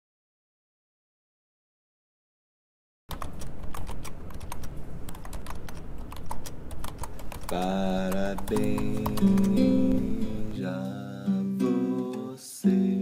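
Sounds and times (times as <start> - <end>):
rapid keyboard typing: 3.1 - 10.2.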